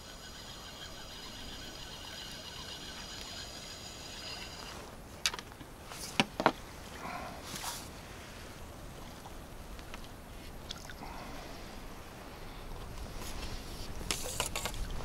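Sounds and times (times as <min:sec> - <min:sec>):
fishing reel whining: 0:00.0 - 0:04.8.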